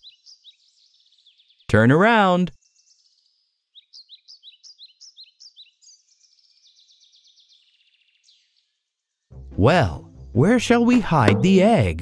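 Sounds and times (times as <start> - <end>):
bird twittering: 0.0 - 1.7, 2.6 - 8.6
bird chirping: 0.0 - 9.4.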